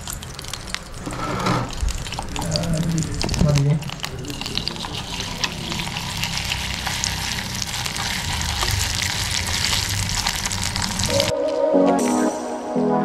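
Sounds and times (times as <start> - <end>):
chicken sizzling in hot oil: 0.0 - 11.3
metal spoon stirring in a wok: 3.9 - 10.9.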